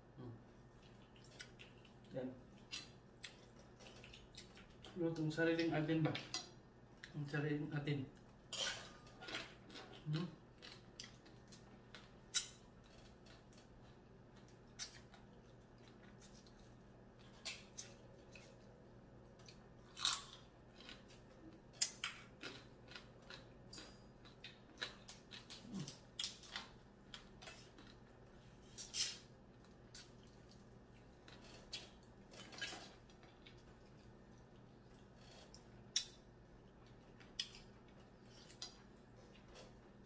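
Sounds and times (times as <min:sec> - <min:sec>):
chewing: 0:00.5 - 0:05.2, 0:08.1 - 0:40.0
shells cracking while eaten: 0:08.9 - 0:18.6, 0:19.3 - 0:39.8.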